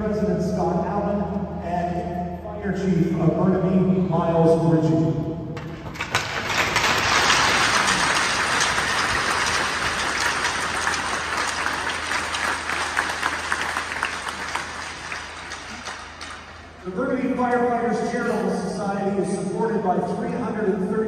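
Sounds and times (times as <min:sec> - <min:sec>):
crowd applauding: 0:05.6 - 0:16.8.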